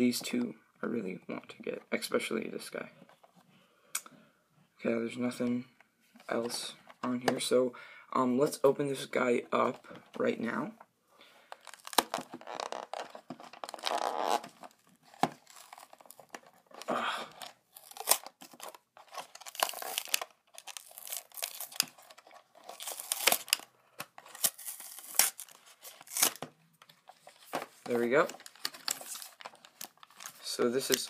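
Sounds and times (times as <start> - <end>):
plastic crinkling: 11.5 - 31.0
cardboard ripping: 11.7 - 16.4, 17.7 - 23.6, 24.3 - 26.5.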